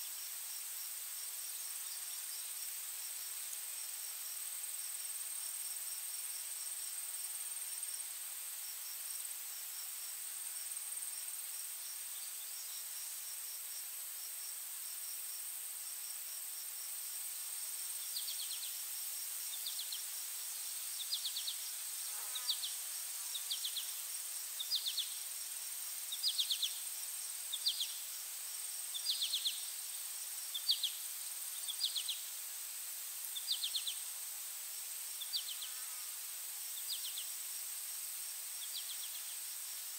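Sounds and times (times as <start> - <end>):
insect buzz: 0.0 - 39.9
insect ticking chirps: 17.8 - 32.4, 33.2 - 34.1, 35.1 - 35.8, 36.6 - 37.6, 38.5 - 39.5.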